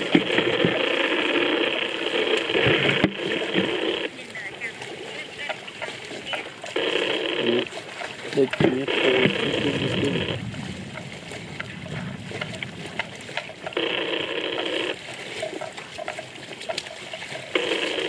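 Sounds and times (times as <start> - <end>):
loud buzz: 0.0 - 4.1, 6.7 - 7.8.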